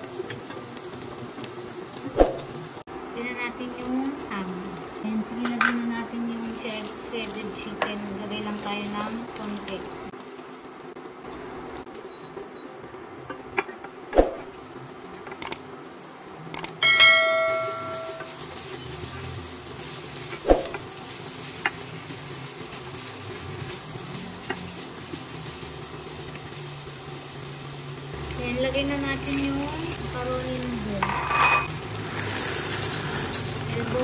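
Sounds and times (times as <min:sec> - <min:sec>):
spatula stirring frying meat: 0:16.8 - 0:30.2.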